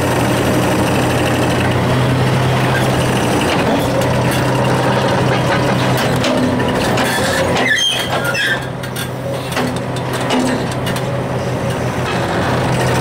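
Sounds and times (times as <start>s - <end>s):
diesel engine running: 0.0s - 13.0s
short high squeals: 7.2s - 8.7s.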